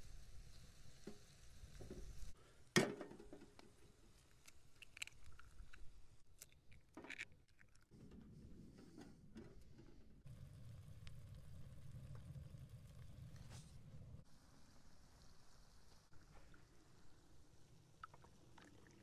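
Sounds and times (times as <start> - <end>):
small objects clicking and knocking: 2.8 - 7.9
low rumble: 10.1 - 14.2.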